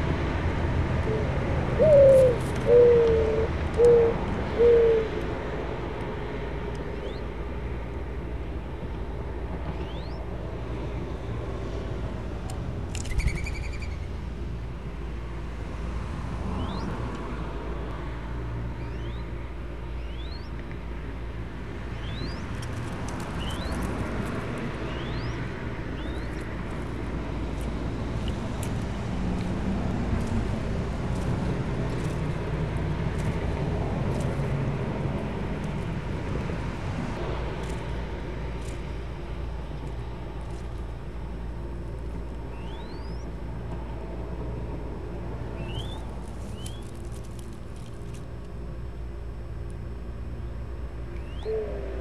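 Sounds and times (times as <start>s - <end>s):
low background hum: 0.0s - 52.0s
rustling and clicks in straw nest: 46.1s - 48.3s.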